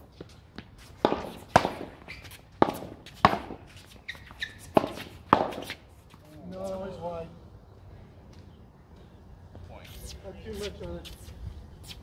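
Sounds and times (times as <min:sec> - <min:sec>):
paddles hitting ball: 0:01.0 - 0:03.6, 0:04.2 - 0:05.8.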